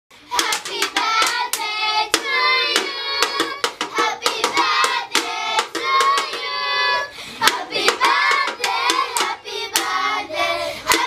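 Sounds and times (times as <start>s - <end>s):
hand claps: 0.3s - 6.5s, 7.4s - 10.0s
children singing: 0.3s - 11.0s.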